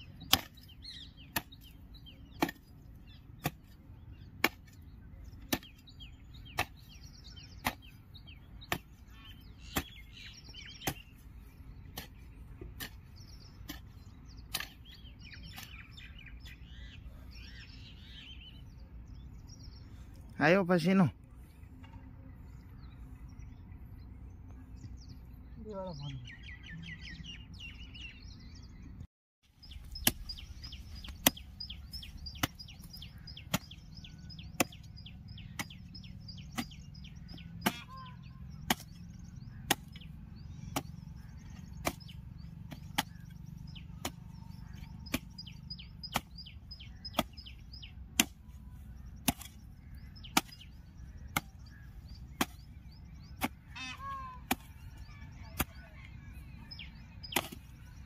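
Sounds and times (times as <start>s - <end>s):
hoe chopping hard soil: 0.0s - 2.8s, 3.4s - 16.0s, 29.6s - 55.9s, 57.2s - 58.0s
birds chirping: 0.0s - 58.0s.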